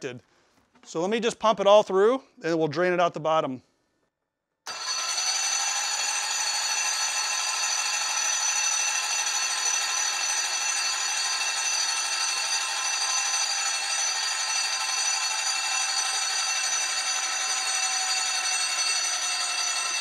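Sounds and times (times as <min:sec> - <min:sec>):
starter motor cranking engine: 0:04.7 - 0:20.0.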